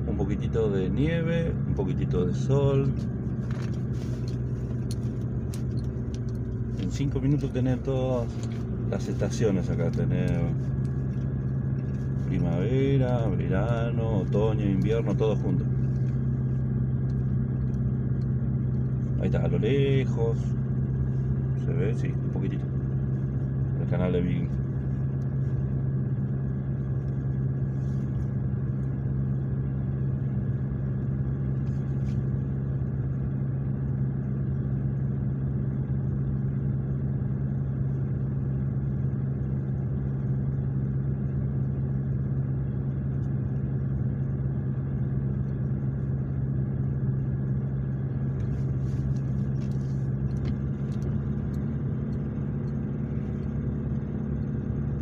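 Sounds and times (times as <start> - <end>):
car engine and tyres droning: 0.0 - 55.0.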